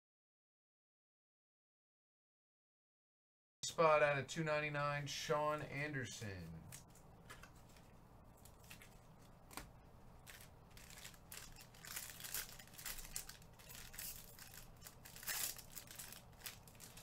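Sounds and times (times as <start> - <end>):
foil wrapper crinkling: 7.3 - 17.0.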